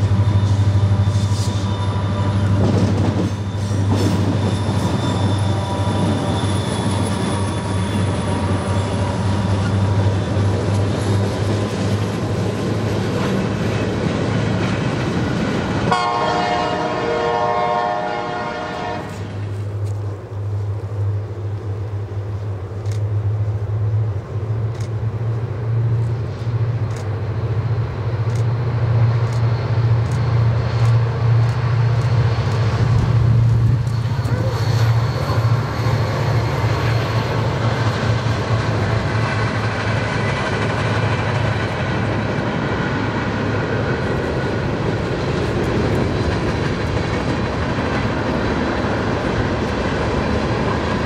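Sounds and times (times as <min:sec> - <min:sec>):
freight train rolling by: 0:00.0 - 0:51.0
locomotive air horn: 0:04.6 - 0:06.5, 0:15.9 - 0:19.4.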